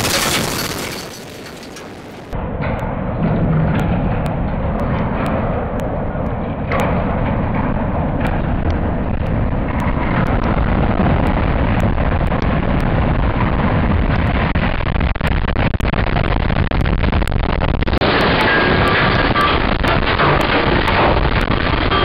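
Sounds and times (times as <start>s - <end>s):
sharp cracks of debris striking: 0.0s - 2.4s
stadium structure collapsing: 0.0s - 22.0s.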